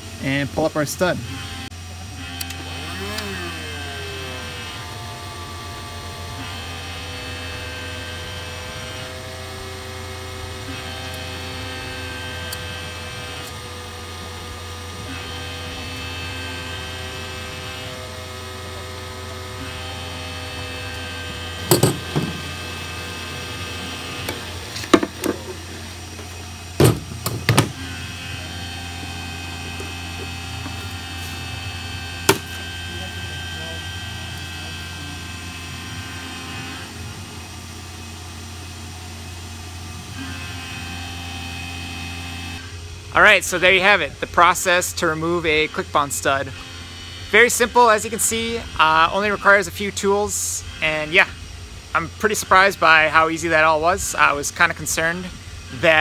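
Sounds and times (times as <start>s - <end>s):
heat gun humming: 0.0s - 56.0s
sharp knocks: 21.7s - 22.4s.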